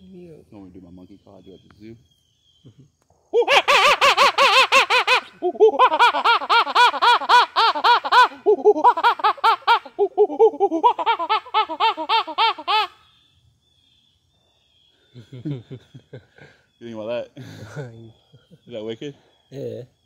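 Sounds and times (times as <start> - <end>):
man imitating monkey hoots: 3.4 - 12.9.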